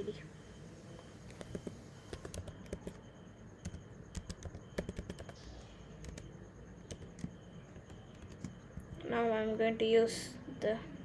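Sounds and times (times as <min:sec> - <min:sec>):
keyboard keystroke clicks: 0:01.3 - 0:03.0, 0:03.6 - 0:05.4, 0:06.0 - 0:06.3.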